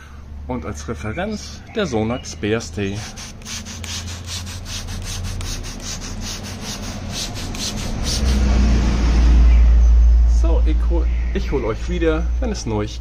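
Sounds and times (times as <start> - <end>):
spray bottle hissing squirts: 3.0 - 8.5
low rumble: 8.3 - 12.6.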